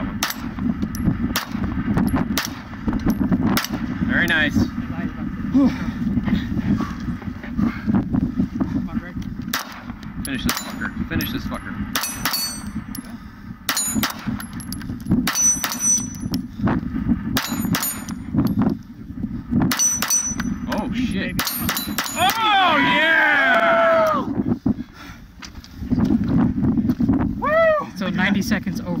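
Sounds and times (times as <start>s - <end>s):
pistol shots: 0.2s - 0.5s, 1.3s - 1.6s, 2.3s - 2.7s, 9.5s - 10.8s, 11.9s - 12.6s, 13.7s - 14.5s, 15.2s - 16.1s
steel targets ringing: 10.4s - 13.0s, 13.7s - 14.7s, 15.3s - 16.3s, 19.7s - 20.7s.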